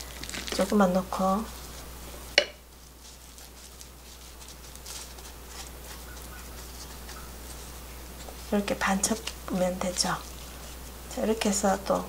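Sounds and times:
soft patting and rustling: 0.2 - 12.0
wooden spoon knocking on glass: 2.4 - 2.6.

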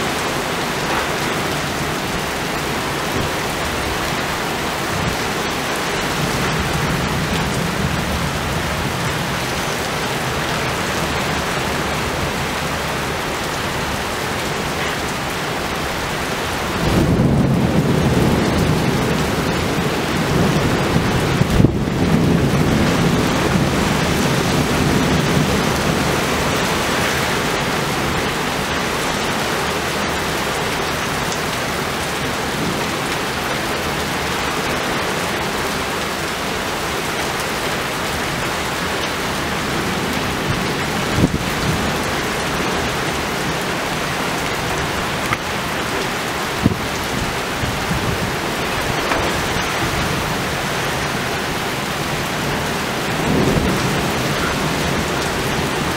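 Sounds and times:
thunder rumble: 0.0 - 30.2, 39.0 - 55.9
heavy rain pouring: 0.0 - 55.9
sharp thunder cracks: 16.8 - 25.9.

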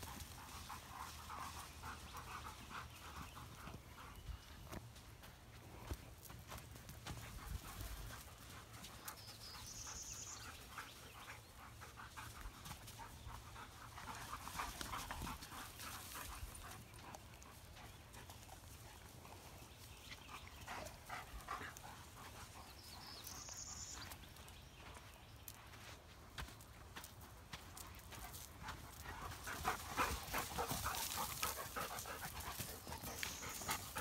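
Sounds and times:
dogs panting: 0.0 - 34.0
light steps on sandy dirt: 3.7 - 9.1, 23.4 - 34.0.

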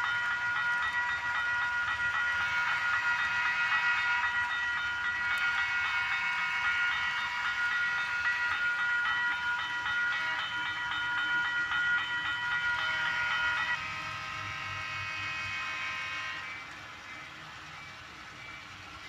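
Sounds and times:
crossing bell ringing rapidly: 0.0 - 16.4.

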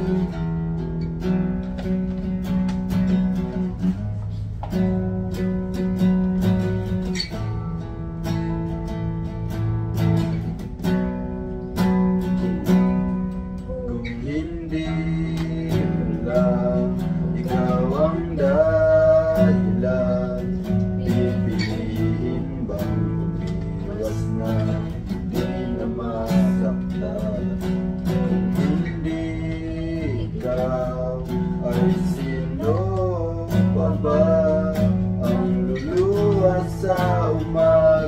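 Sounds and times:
acoustic guitar strumming: 0.0 - 38.0
people singing: 13.7 - 38.0.

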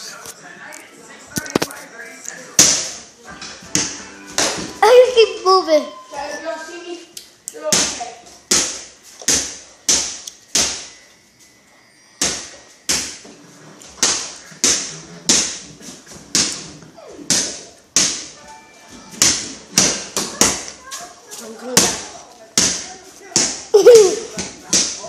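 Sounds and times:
ball bouncing on tile floor: 2.6 - 5.0, 7.5 - 11.0, 12.2 - 18.4, 19.0 - 25.0.

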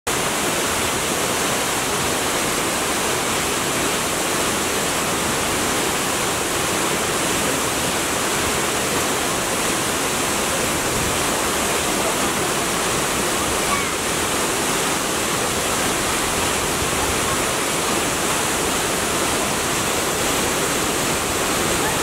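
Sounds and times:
waterfall rushing: 0.1 - 22.0.

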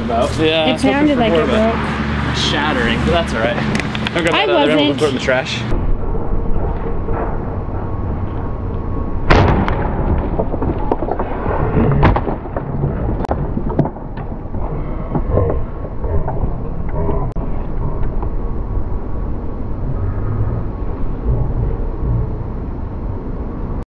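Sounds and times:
wind and handling rumble: 0.0 - 23.8
sharp knocks and clatters: 9.3 - 16.0.

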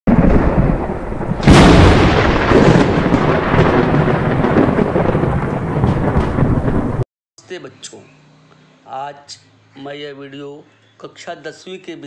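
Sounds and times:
thunder rumbling and clapping: 0.1 - 7.0.

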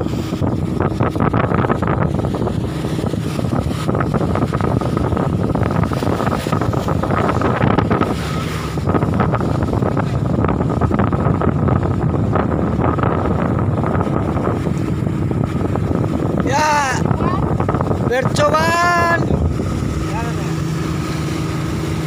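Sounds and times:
boat engine: 0.0 - 22.0
water rushing along hull: 0.0 - 22.0
wind buffeting microphone: 0.0 - 22.0.

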